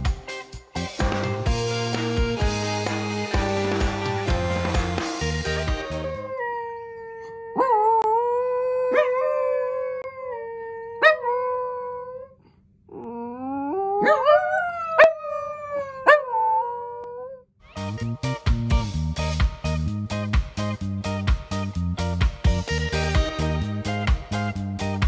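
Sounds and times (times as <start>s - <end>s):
background music with a beat: 0.0s - 6.3s, 17.7s - 25.0s
dogs howling: 5.8s - 12.3s, 13.0s - 17.4s
dog yipping: 14.0s - 14.4s.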